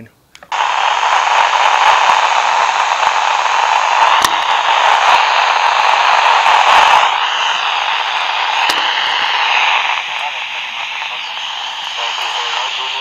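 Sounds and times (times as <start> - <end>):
radio static hiss: 0.0 - 13.0
sharp click: 8.6 - 8.9.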